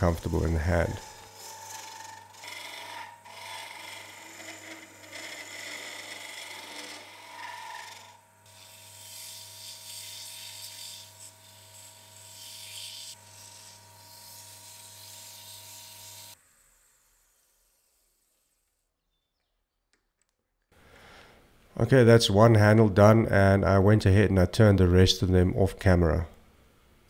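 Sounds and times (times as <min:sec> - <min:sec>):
wood lathe running: 0:00.0 - 0:11.6
gouge scraping wood: 0:00.0 - 0:16.3
sandpaper sanding hiss: 0:08.6 - 0:18.8.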